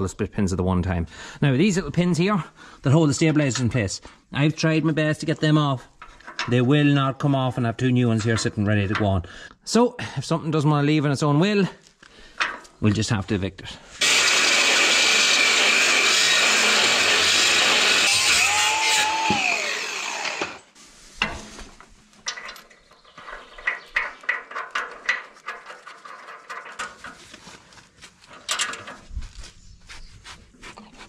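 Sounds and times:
angle grinder cutting metal: 0:14.0 - 0:20.8.

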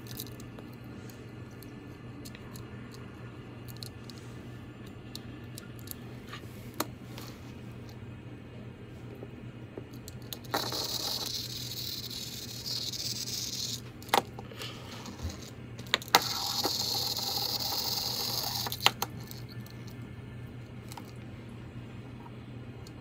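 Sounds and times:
toy car motor whirring: 0:10.5 - 0:13.8, 0:14.9 - 0:19.7.

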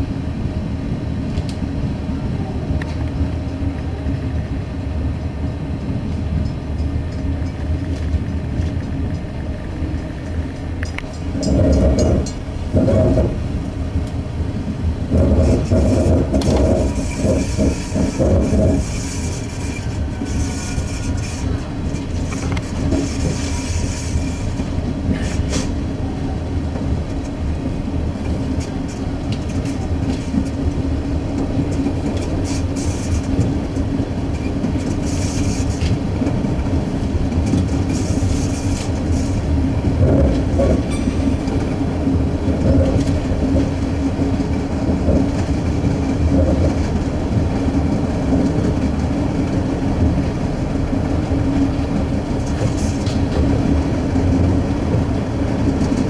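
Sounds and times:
train engine rumble: 0:00.0 - 0:56.0
wheels clicking over track: 0:15.1 - 0:25.8.

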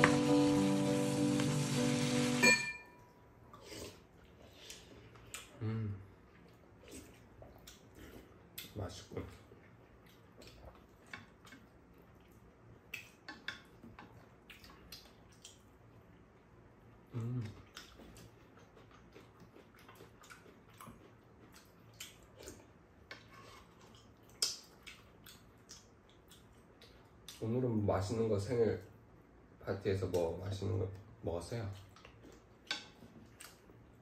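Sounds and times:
soft chewing: 0:03.4 - 0:27.7, 0:30.9 - 0:34.0.

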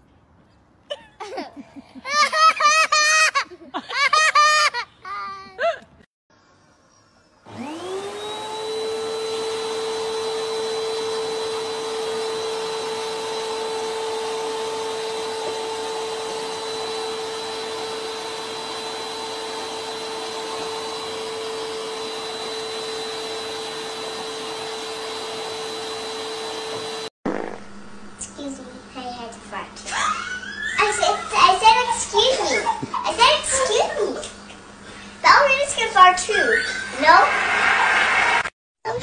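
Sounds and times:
vacuum cleaner motor whine: 0:07.4 - 0:28.1
vacuum nozzle on rug: 0:07.5 - 0:27.8.

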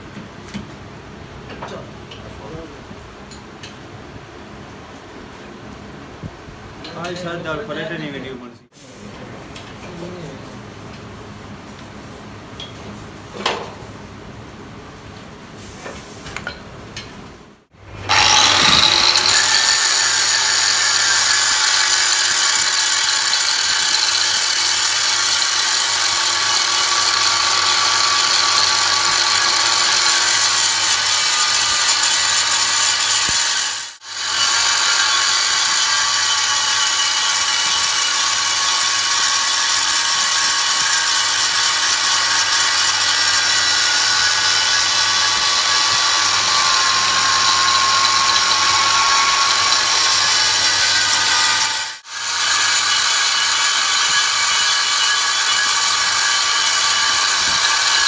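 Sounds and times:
angle grinder grinding steel: 0:17.8 - 0:58.0
lathe motor hum: 0:17.8 - 0:58.0.

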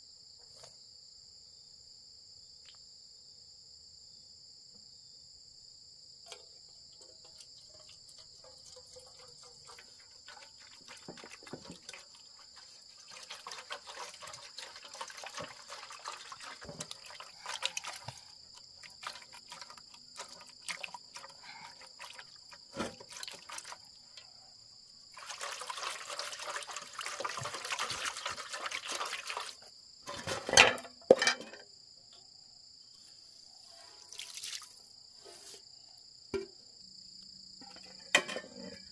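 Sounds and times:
crickets trilling: 0:00.0 - 0:38.9
water sloshing and pouring: 0:07.0 - 0:24.4, 0:25.0 - 0:31.6, 0:34.0 - 0:34.9
rice swishing in water: 0:07.8 - 0:23.9, 0:25.1 - 0:29.6.

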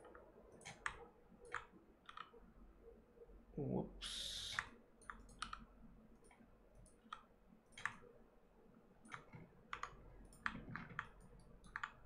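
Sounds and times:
computer mouse and keyboard clicking: 0:00.0 - 0:02.4, 0:04.5 - 0:08.1, 0:09.0 - 0:12.0.

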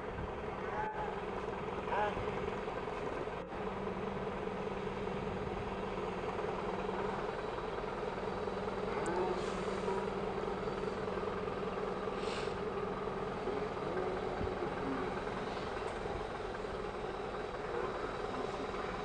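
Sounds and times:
crane diesel engine running: 0:00.0 - 0:19.0
short faint hisses: 0:12.2 - 0:12.6.

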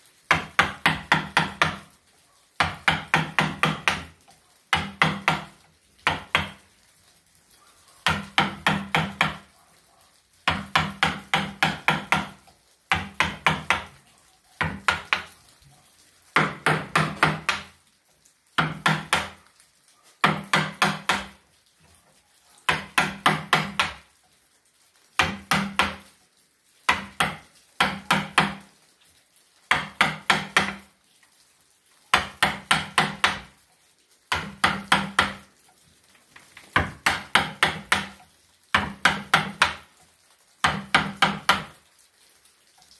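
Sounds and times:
mallet striking chisel into wood: 0:00.3 - 0:01.8, 0:02.6 - 0:04.1, 0:04.7 - 0:06.6, 0:08.1 - 0:09.4, 0:10.5 - 0:13.9, 0:14.6 - 0:15.3, 0:16.4 - 0:17.7, 0:18.6 - 0:19.4, 0:20.2 - 0:21.4, 0:22.7 - 0:24.0, 0:25.2 - 0:26.0, 0:26.9 - 0:28.6, 0:29.7 - 0:30.8, 0:32.1 - 0:33.5, 0:34.3 - 0:35.4, 0:36.8 - 0:38.2, 0:38.8 - 0:39.8, 0:40.6 - 0:41.7.

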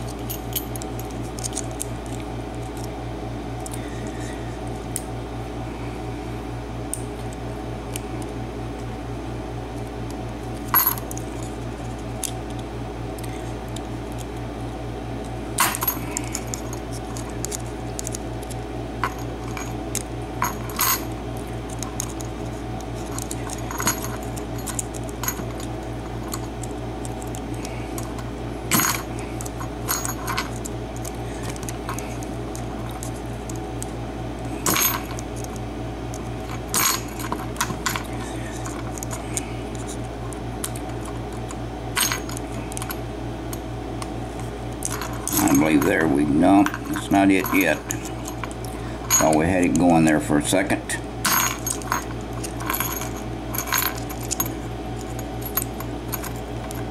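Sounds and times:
steady low hum: 0:00.0 - 0:56.9.

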